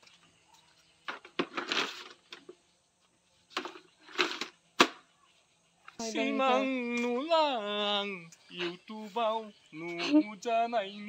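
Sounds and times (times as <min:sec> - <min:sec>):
plastic chairs scraping and rattling: 0:01.1 - 0:02.6, 0:03.5 - 0:05.0.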